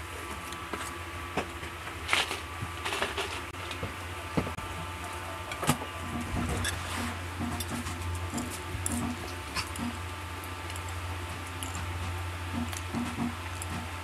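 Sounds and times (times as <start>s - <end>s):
low steady hum: 0.0s - 14.0s
bread being chewed: 6.1s - 14.0s.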